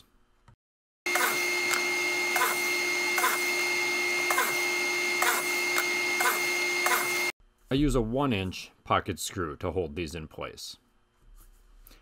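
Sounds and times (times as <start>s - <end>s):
drilling machine whining: 1.1s - 7.4s.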